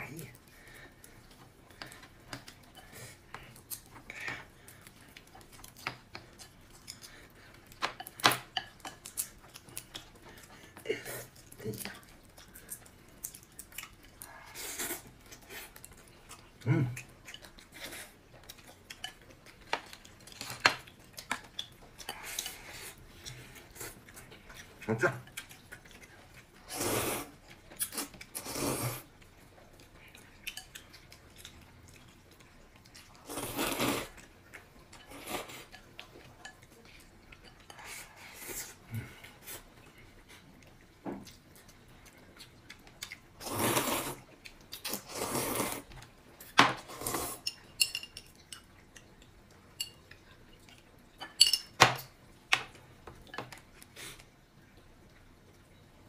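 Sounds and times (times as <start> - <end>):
utensils clinking against dishes: 47.4 - 48.7, 51.2 - 51.9.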